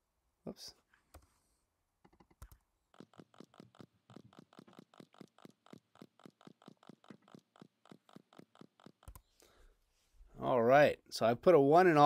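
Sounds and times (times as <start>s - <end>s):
keyboard typing: 2.0s - 9.5s.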